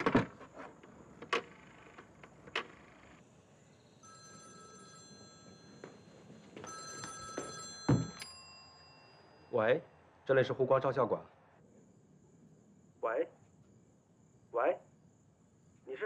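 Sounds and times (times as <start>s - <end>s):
old telephone bell ringing: 3.8s - 10.1s.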